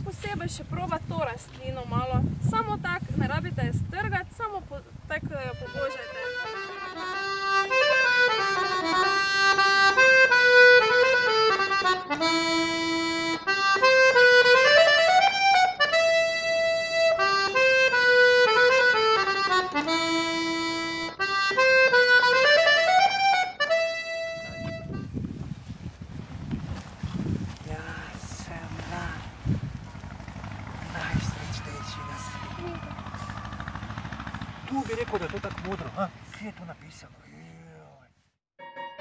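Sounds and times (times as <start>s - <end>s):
instrumental melody: 5.2s - 25.2s, 38.6s - 39.0s.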